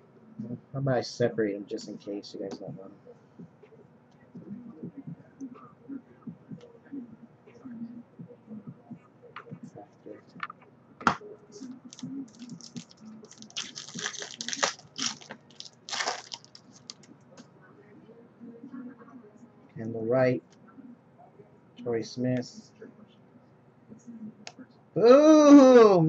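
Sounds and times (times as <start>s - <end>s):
trading cards rustling and snapping: 11.9s - 17.1s.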